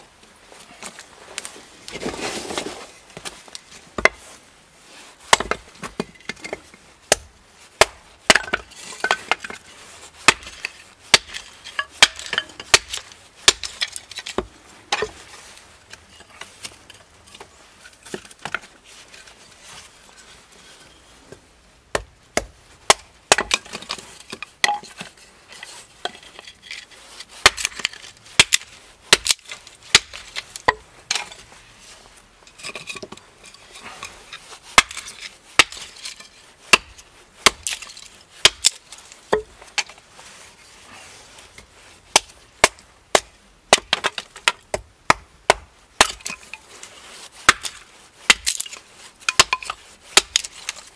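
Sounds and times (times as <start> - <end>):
hatchet chopping kindling: 7.1 - 9.5, 10.2 - 15.2, 21.9 - 23.9, 27.4 - 30.8, 34.8 - 35.9, 36.7 - 39.9, 42.1 - 46.4, 47.4 - 50.8.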